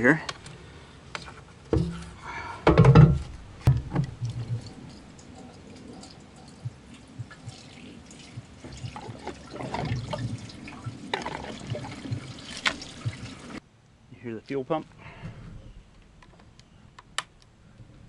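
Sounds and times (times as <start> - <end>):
gasoline pouring into tank: 3.7 - 13.6.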